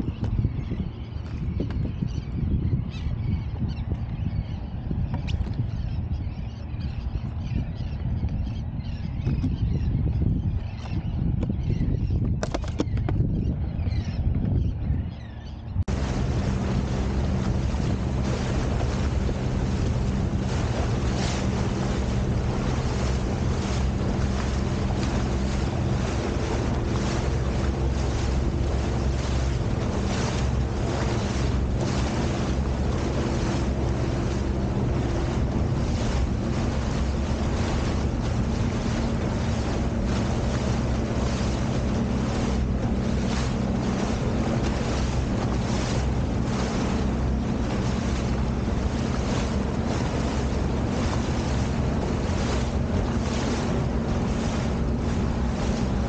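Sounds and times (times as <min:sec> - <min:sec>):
jet ski engine running: 0:00.0 - 0:56.0
wind buffeting microphone: 0:00.0 - 0:56.0
water splashing off hull: 0:15.4 - 0:56.0.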